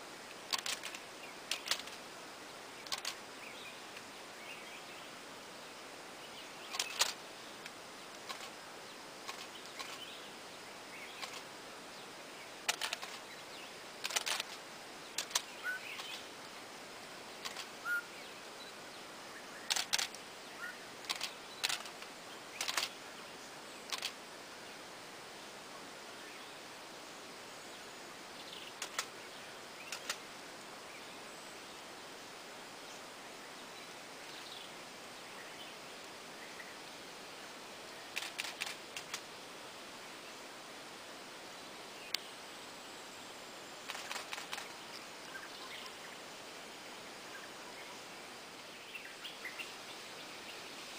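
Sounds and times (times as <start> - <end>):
steady outdoor hiss: 0.0 - 50.9
camera shutters clicking: 6.7 - 7.2, 14.0 - 14.6, 19.7 - 20.2, 21.1 - 22.0, 22.6 - 22.9, 38.2 - 39.2.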